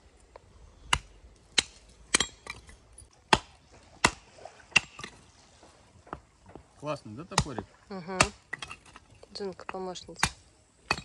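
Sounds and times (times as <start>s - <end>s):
hatchet chopping wood: 0.9s - 2.6s, 3.3s - 4.2s, 4.8s - 5.1s, 8.2s - 8.8s, 10.2s - 11.0s.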